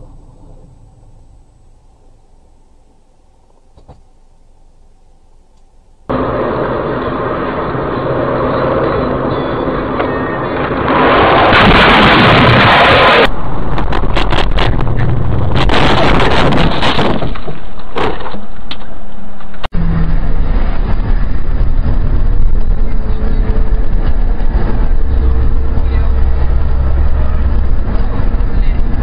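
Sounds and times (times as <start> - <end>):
car engine and road noise: 0.0 - 29.0
car crash crashing and scraping: 10.7 - 18.7
sharp knocks and clatters: 13.7 - 19.7.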